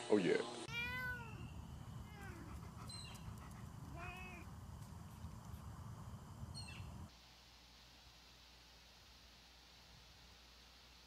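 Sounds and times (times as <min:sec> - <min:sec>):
cat meowing faintly: 0:00.7 - 0:04.5.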